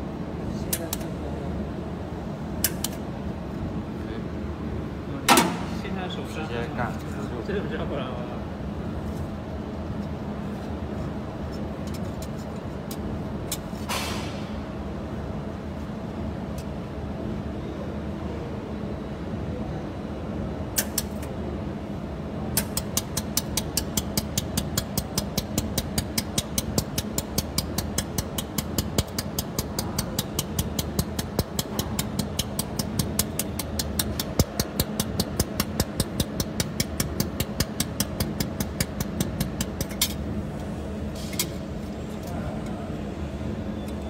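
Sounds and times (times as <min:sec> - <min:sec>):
machine hum: 0:20.1 - 0:44.0.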